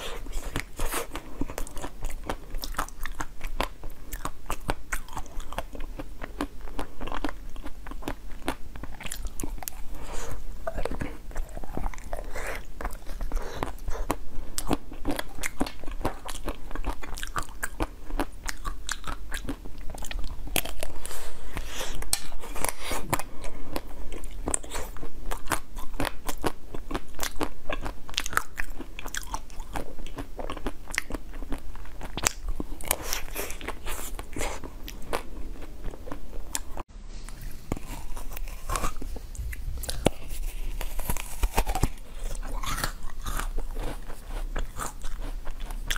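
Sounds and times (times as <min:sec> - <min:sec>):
crunchy chewing of frozen food: 0:00.0 - 0:45.9.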